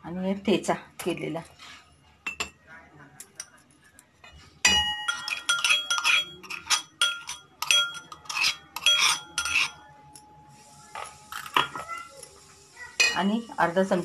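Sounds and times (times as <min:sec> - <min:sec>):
steel spoon clinking on metal bowls: 0:03.2 - 0:10.3, 0:13.0 - 0:13.6.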